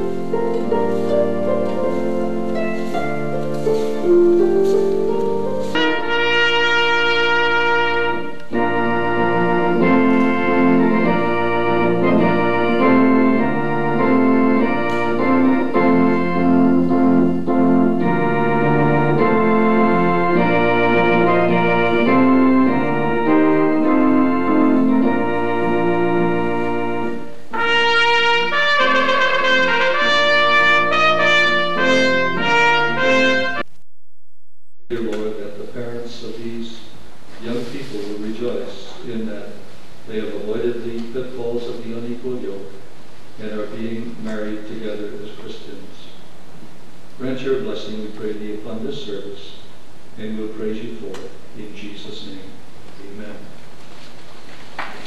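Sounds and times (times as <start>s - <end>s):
organ and trumpet music: 0.0s - 33.8s.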